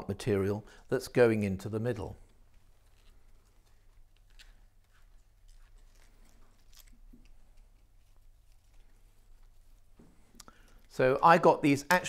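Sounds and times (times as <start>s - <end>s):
faint rustling: 1.8s - 11.1s.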